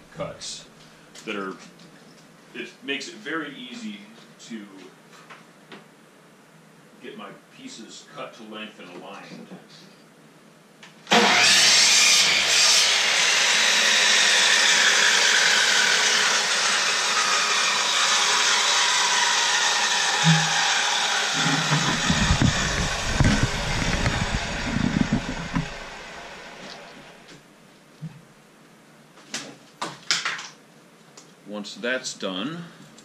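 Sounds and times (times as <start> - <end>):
power tool motor running: 11.1 - 27.3
wood knocking and thumping: 21.4 - 26.1.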